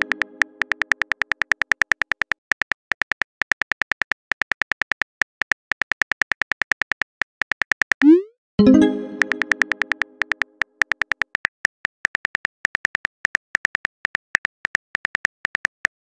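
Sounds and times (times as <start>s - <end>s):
touchscreen keyboard clicks: 8.6s - 10.5s.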